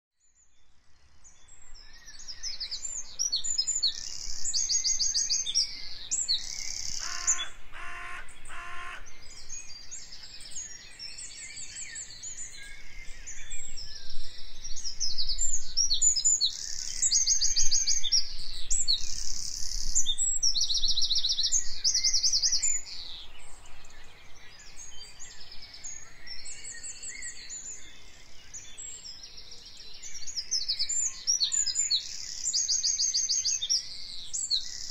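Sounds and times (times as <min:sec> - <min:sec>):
small birds chirping: 0:00.2 - 0:34.9
short lower bird calls: 0:03.9 - 0:10.9.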